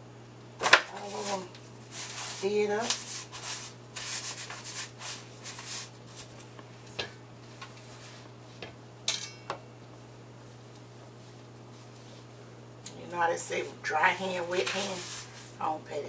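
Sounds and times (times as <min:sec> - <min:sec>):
gritty rubbing of breadcrumbs: 0:01.0 - 0:06.3
metallic ring of steel bowl: 0:09.1 - 0:09.5.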